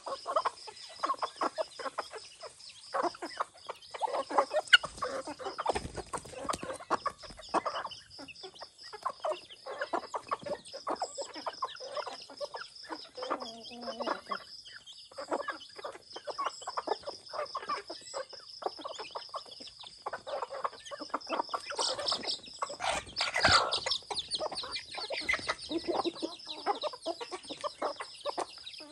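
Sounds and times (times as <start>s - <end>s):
chickens clucking: 0.0s - 28.9s.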